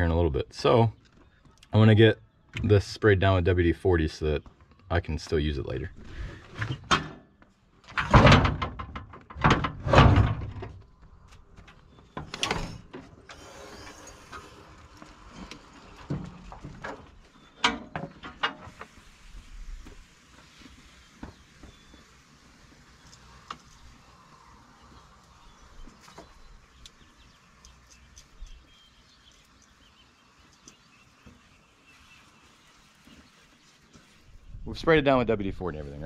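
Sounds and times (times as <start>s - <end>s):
metallic bangs and clanks: 7.9s - 10.8s.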